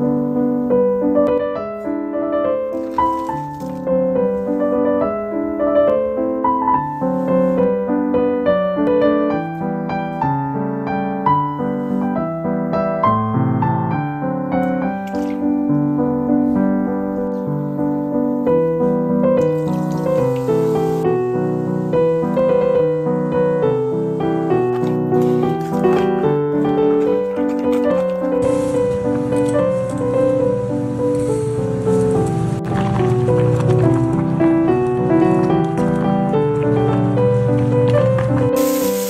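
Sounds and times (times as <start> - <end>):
piano music: 0.0 - 39.0
liquid poured into a pot: 19.4 - 21.0, 32.4 - 39.0.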